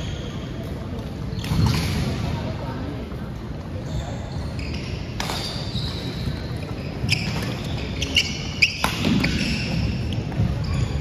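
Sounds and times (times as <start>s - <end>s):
sneakers squeaking: 0.0s - 2.5s, 3.4s - 11.0s
rackets hitting shuttlecock: 5.1s - 10.6s.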